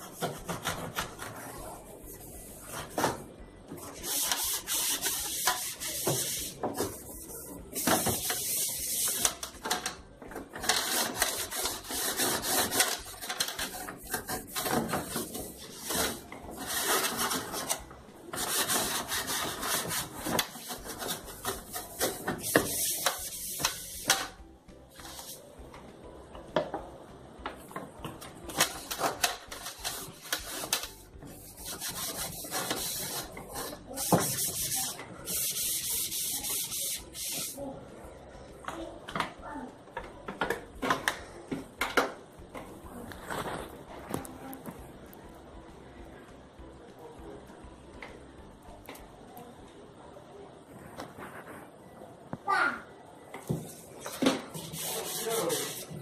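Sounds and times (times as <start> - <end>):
hand scrubbing a surface: 3.9 - 9.3, 29.8 - 37.6, 54.5 - 56.0.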